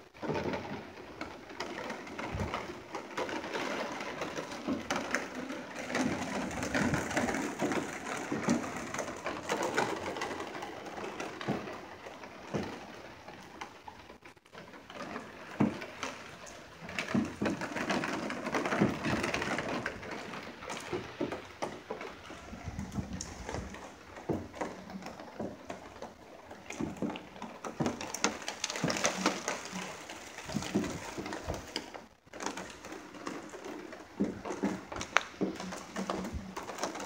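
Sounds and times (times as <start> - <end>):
raindrops tapping: 0.0 - 37.0
rain rushing: 4.1 - 37.0.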